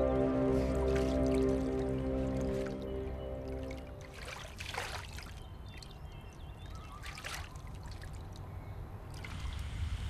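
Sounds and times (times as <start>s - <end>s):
paddle splashing in water: 0.6s - 5.4s.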